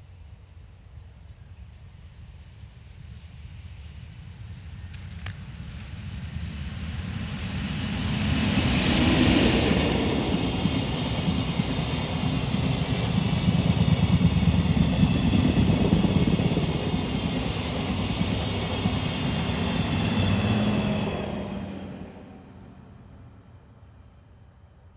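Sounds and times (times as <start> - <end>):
train wheels rumbling on rails: 4.8 - 23.3.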